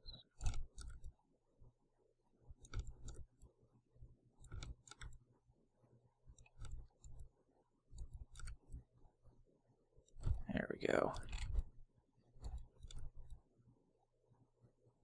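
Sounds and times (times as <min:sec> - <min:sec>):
computer mouse clicks: 0:00.0 - 0:01.2, 0:02.5 - 0:03.6, 0:04.3 - 0:05.3, 0:06.2 - 0:09.0, 0:10.0 - 0:13.5.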